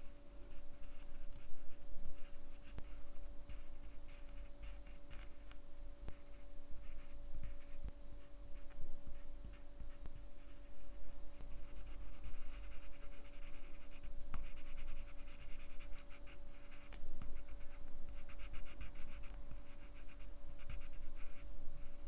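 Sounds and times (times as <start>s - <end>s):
faint steady hum: 0.0s - 22.0s
pencil scratching on paper: 11.4s - 22.0s.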